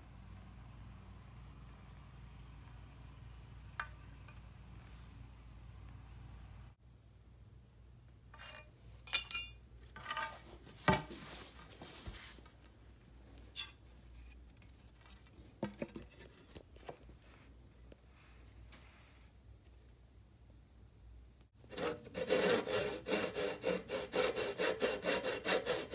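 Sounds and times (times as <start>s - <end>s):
metallic tool clinks: 8.4s - 9.6s.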